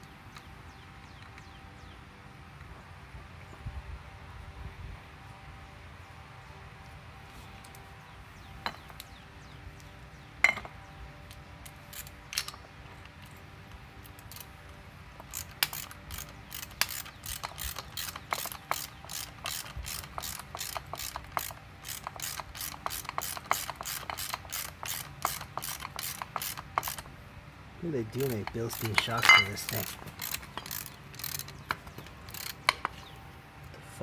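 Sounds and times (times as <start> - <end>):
ratchet wrench clicking: 14.0 - 14.5, 15.2 - 27.1, 28.2 - 33.1.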